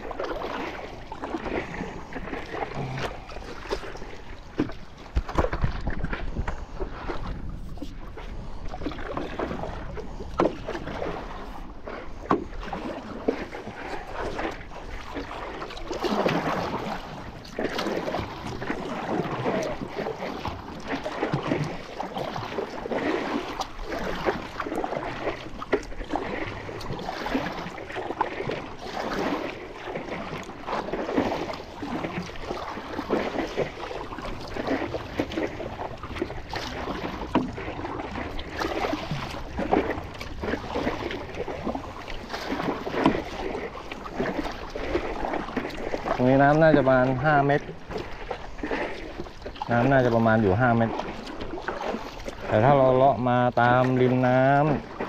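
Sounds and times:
paddle splashing into water: 0.0s - 55.0s
water lapping against board: 0.0s - 55.0s.

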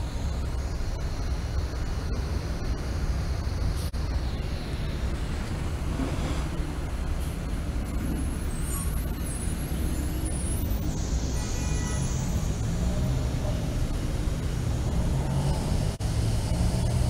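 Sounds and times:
bus engines rumbling: 0.0s - 17.0s
bus brakes hissing and squealing: 5.9s - 13.8s.

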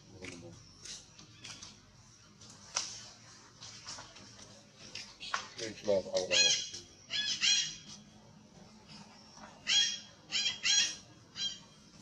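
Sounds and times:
baby monkey shrill distress screams: 6.3s - 7.8s, 9.7s - 11.6s.

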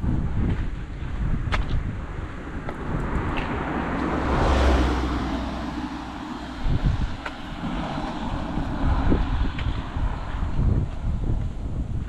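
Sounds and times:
wind buffeting microphone: 0.0s - 12.0s
small truck passing: 2.4s - 10.9s.

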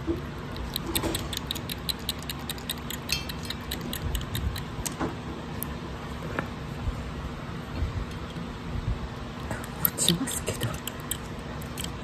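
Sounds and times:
kitten suckling with mouth clicks: 0.4s - 5.0s, 9.5s - 12.0s.

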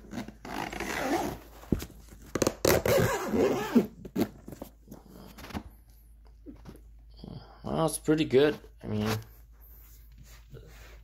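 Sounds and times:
zipper being pulled closed: 0.0s - 1.5s, 2.4s - 4.4s.

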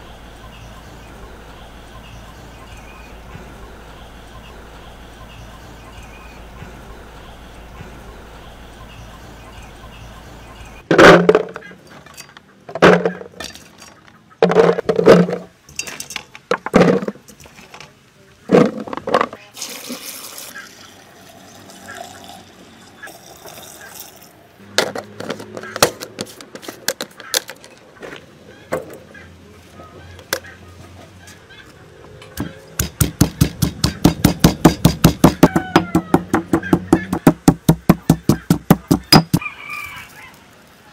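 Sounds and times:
fruits clattering into plastic jar: 10.9s - 11.7s, 12.7s - 17.9s, 18.5s - 19.5s
pestle pounding in stone mortar: 32.4s - 39.4s.

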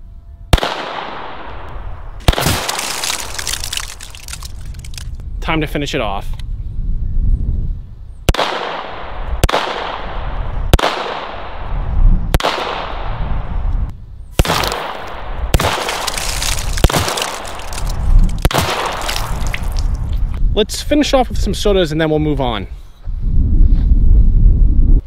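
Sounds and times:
gunshots with echo: 8.3s - 11.7s, 12.4s - 13.3s.

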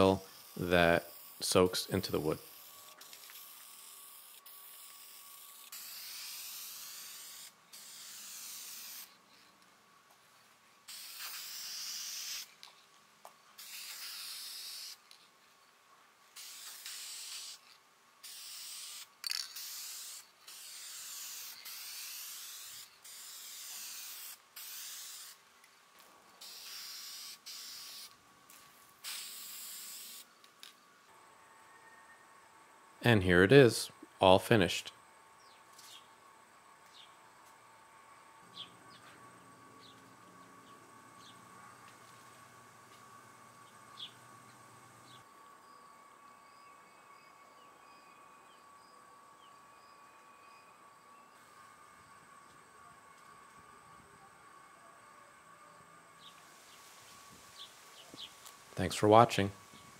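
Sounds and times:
aerosol spray can hissing: 2.4s - 9.2s, 10.9s - 12.7s, 13.6s - 15.2s, 16.3s - 25.4s, 26.4s - 28.2s, 29.0s - 30.3s.

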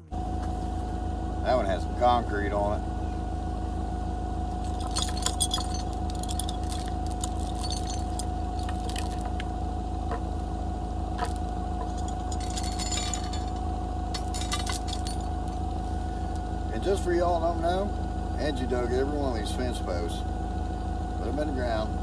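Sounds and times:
forklift engine idling: 0.0s - 22.0s
chain clinking and rattling: 4.5s - 9.6s, 11.2s - 16.5s.

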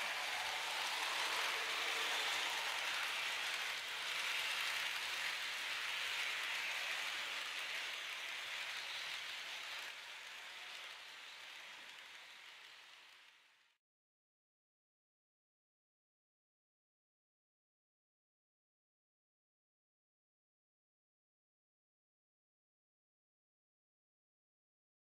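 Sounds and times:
model train wheels rattling: 0.1s - 13.3s.

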